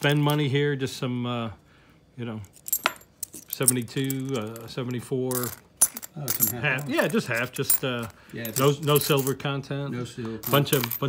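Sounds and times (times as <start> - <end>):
coins clinking: 2.4 - 9.5, 10.4 - 11.0.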